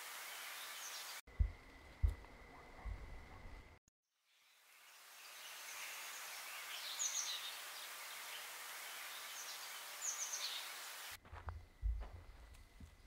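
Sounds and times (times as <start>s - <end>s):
steady hiss: 0.0s - 1.2s, 4.7s - 11.2s
soft low thumps: 1.3s - 3.6s, 11.2s - 13.0s
birds chirping: 5.3s - 13.0s.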